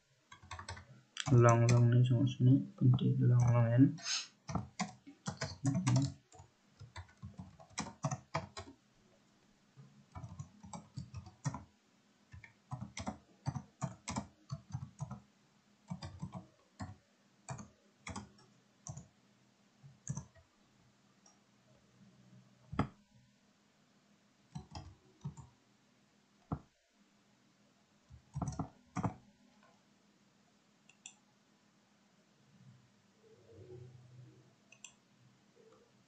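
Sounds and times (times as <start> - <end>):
typing on computer keyboard: 0.3 - 1.9, 4.5 - 8.8, 10.1 - 11.7, 12.3 - 15.2, 15.9 - 19.1, 20.0 - 20.4, 24.5 - 25.5, 28.1 - 29.2.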